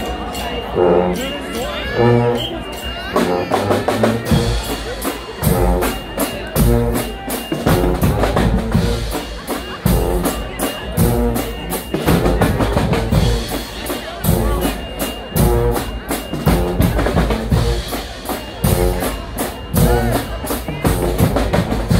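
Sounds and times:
brass blaring: 0.7 - 4.8
heavy driving drumming: 3.2 - 21.9.

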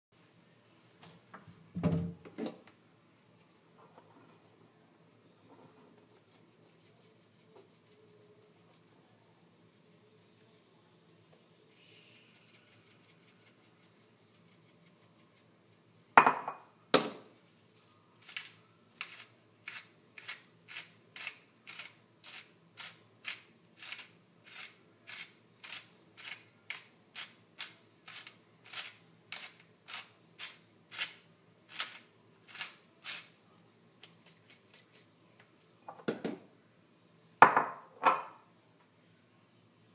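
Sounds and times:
pepper mill grinding: 6.1 - 16.1, 17.4 - 35.8
mills knocking on counter: 16.2 - 17.2.

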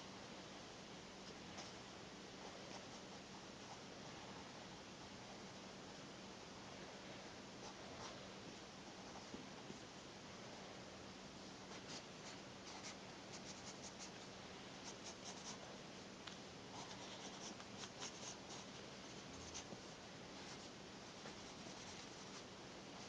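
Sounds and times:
pencil scratching on paper: 11.7 - 14.2, 14.8 - 15.6, 16.7 - 19.8, 20.4 - 22.5.

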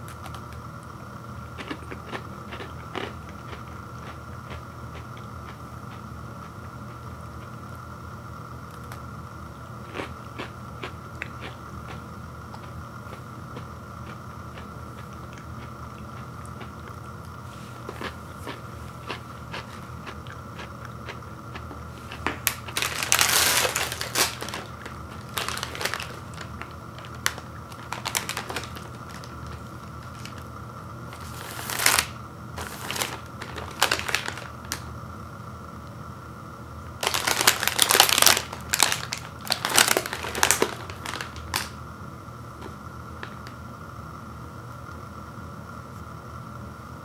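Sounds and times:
plastic wrapper crinkling: 22.2 - 30.4, 31.1 - 34.9, 37.0 - 41.8.

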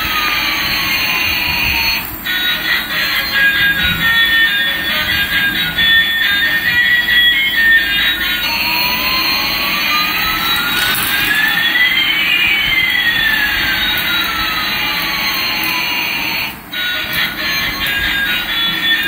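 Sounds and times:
rising and falling whistles: 5.8 - 14.9.

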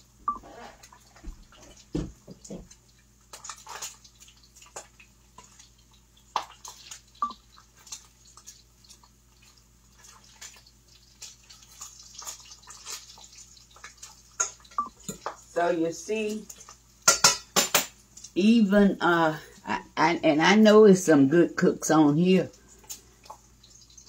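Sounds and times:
bacon frying and popping: 0.0 - 19.0, 22.2 - 24.0
cookware clattering: 14.4 - 15.4, 17.0 - 18.0.

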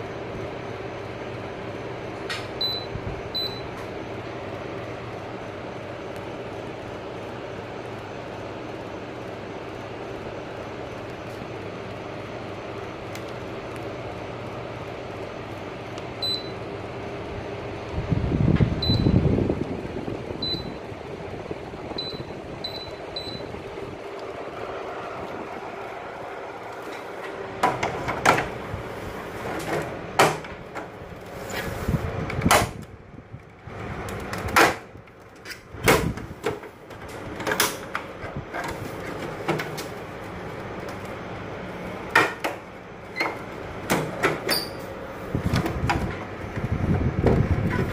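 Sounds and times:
air conditioner running: 0.0 - 47.9.

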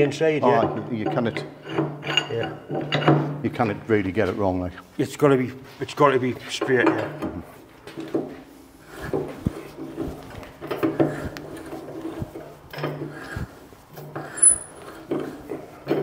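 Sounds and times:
metal-on-metal scraping: 0.6 - 3.7, 8.8 - 16.0.

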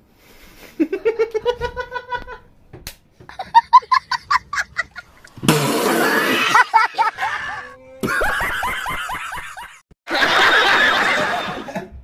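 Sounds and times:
person laughing: 0.8 - 2.4, 3.3 - 5.3, 5.9 - 9.8
higher-pitched laughing: 3.3 - 11.8.

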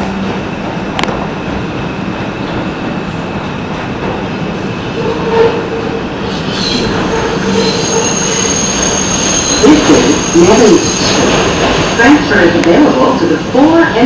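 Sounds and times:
subway train running in tunnel: 0.0 - 14.0
train wheels squealing: 6.2 - 11.4.

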